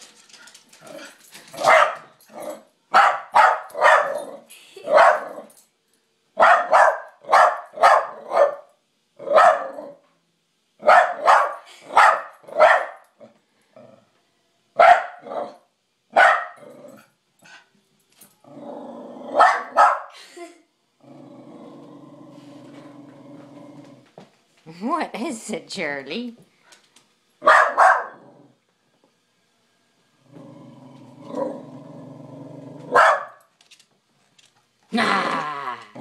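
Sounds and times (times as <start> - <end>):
dog barking: 1.6 - 2.1, 2.9 - 4.2, 4.9 - 5.4, 6.4 - 8.7, 9.3 - 9.8, 10.8 - 13.0, 14.8 - 16.6, 19.4 - 20.1, 27.4 - 28.2, 32.9 - 33.4.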